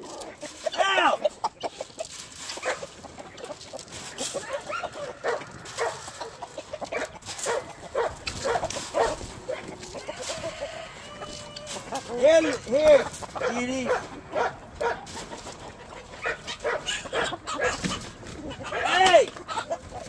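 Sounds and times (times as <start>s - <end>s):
chickens clucking: 0.0s - 20.0s
dog barking: 2.6s - 2.9s, 4.4s - 6.3s, 6.9s - 9.7s, 13.4s - 15.1s, 16.2s - 17.9s.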